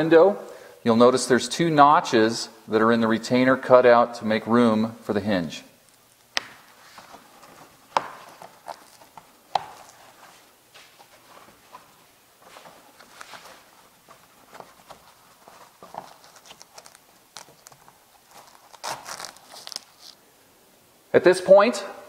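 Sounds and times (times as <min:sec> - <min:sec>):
fabric rustling: 0:06.4 - 0:20.2.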